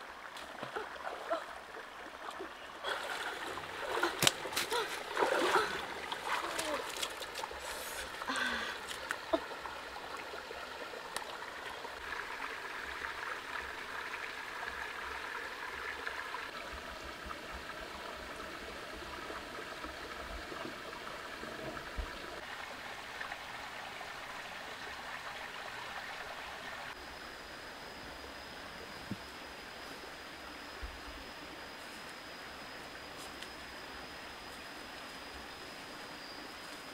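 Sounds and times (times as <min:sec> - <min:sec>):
stream water rushing: 0:00.0 - 0:17.1
thin high steady tone: 0:26.8 - 0:36.9.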